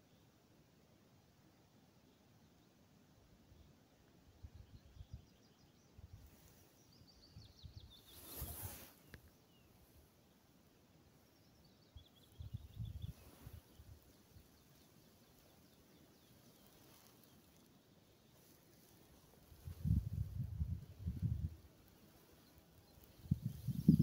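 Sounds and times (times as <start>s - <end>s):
songbird singing: 1.2s - 24.0s
brief rush of noise: 8.1s - 9.0s.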